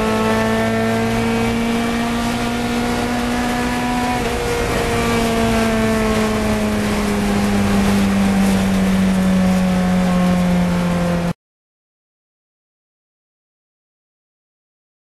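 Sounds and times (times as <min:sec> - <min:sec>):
car engine at high revs: 0:00.0 - 0:11.4
road and wind noise: 0:00.0 - 0:11.4.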